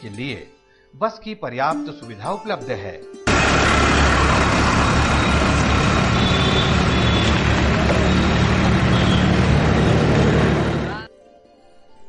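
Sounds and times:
bus passing and pulling away: 3.3s - 11.1s.

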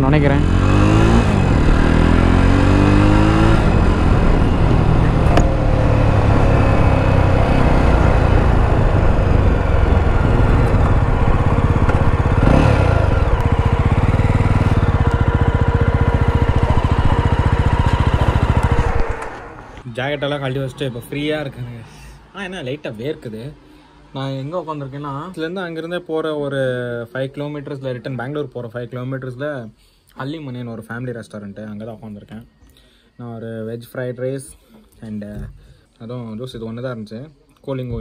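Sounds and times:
motorcycle engine running: 0.0s - 19.8s.

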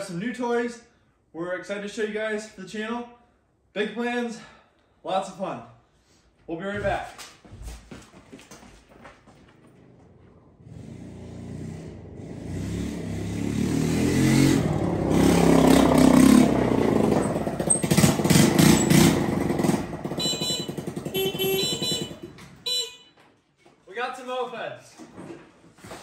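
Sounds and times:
motor scooter engines: 9.5s - 22.9s.

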